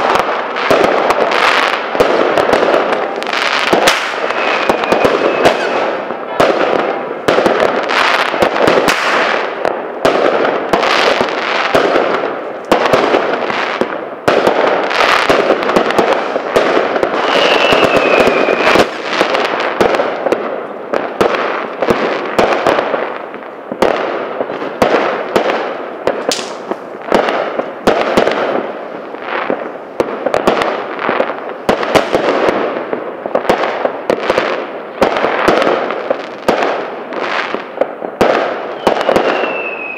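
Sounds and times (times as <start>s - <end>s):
fireworks and firecrackers banging: 0.0s - 39.9s
falling firework whistle: 2.8s - 6.4s, 17.1s - 19.3s, 38.6s - 39.9s.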